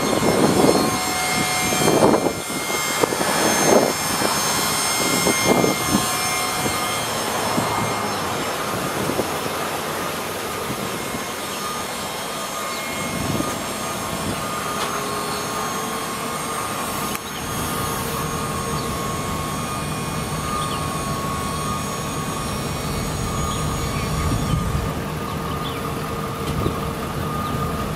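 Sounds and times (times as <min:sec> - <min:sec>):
hydraulic dump bed whine: 0:00.0 - 0:27.9
truck engine running: 0:00.0 - 0:27.9.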